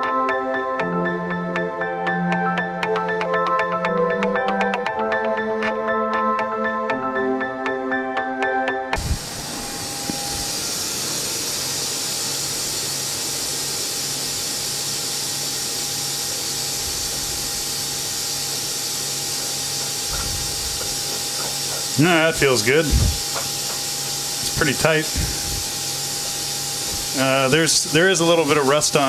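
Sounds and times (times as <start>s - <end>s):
music: 0.0s - 10.5s
coolant spraying hiss: 9.0s - 29.0s
milling machine humming: 9.0s - 29.0s.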